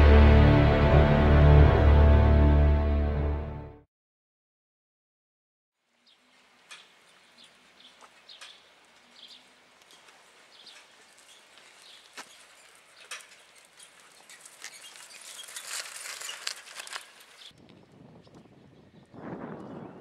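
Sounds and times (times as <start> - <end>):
small birds chirping: 6.0 - 17.6
bicycle rattling and ticking: 12.3 - 17.6.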